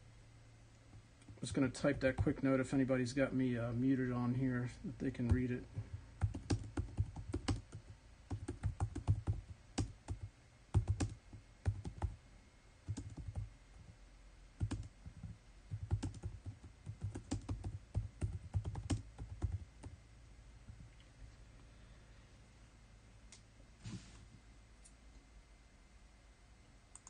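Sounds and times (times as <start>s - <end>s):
typing on computer keyboard: 6.2s - 12.2s, 12.9s - 13.5s, 14.6s - 20.0s.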